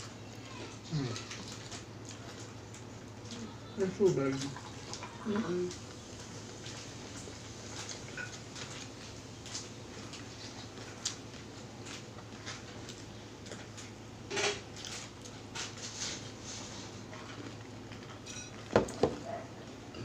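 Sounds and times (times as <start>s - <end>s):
people eating and drinking: 0.0s - 13.0s.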